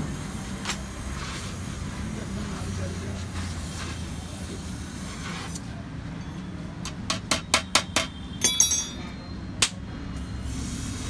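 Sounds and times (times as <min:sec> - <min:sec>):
steady background noise: 0:00.0 - 0:11.0
sharp metallic taps: 0:06.8 - 0:09.8
ringing metallic clinks: 0:08.4 - 0:09.4.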